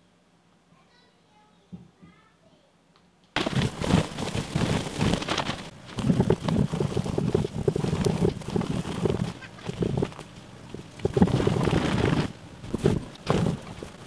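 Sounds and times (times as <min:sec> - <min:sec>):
cloth rubbing on glass: 0:03.4 - 0:14.0.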